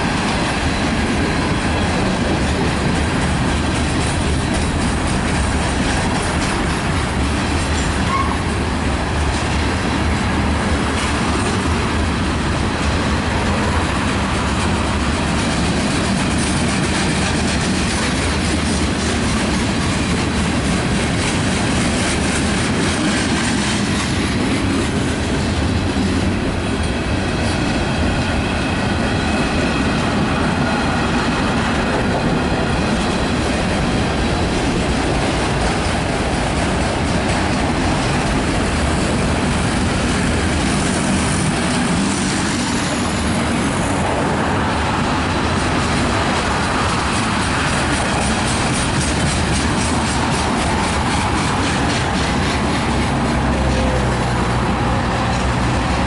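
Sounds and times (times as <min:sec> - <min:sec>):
train wheels rumbling on rails: 0:00.0 - 0:56.0
wheel squeal: 0:07.8 - 0:08.4.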